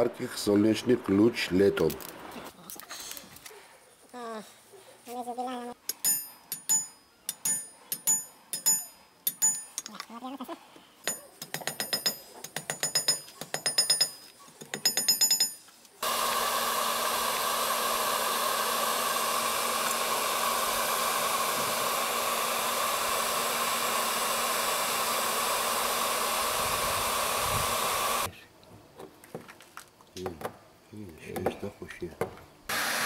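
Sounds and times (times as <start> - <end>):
hammer striking steel mesh: 5.9 - 9.9, 11.1 - 15.6
hot air gun blowing: 16.0 - 28.3, 32.7 - 33.0.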